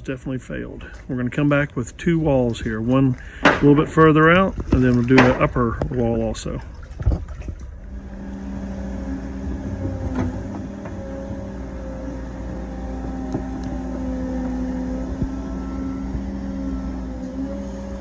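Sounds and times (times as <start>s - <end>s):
excavator diesel engine running: 7.4s - 18.0s.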